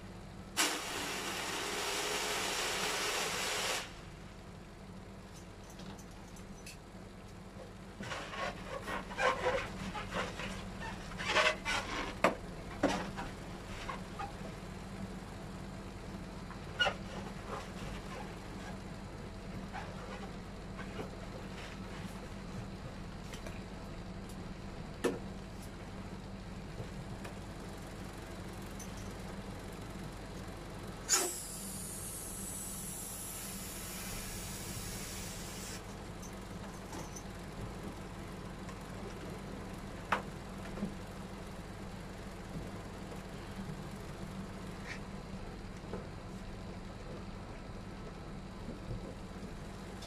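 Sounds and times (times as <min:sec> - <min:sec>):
low electrical hum: 0:00.0 - 0:50.0.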